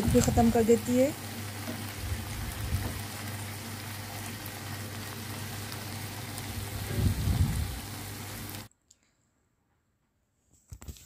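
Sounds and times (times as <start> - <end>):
food sizzling in frying pan: 0.0 - 8.7.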